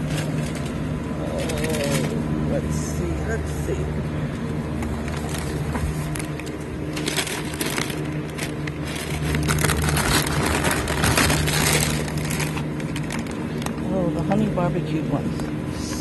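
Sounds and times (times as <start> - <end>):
plastic bags crinkling: 0.0 - 2.2, 4.8 - 13.9
steady low hum: 0.0 - 16.0.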